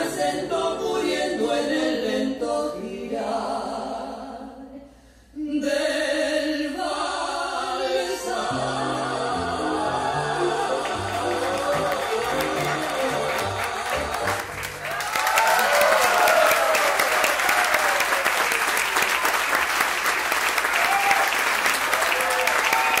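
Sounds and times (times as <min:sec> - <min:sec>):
tango waltz music: 0:08.6 - 0:14.8
audience cheering: 0:10.1 - 0:23.0
audience clapping: 0:10.7 - 0:23.0.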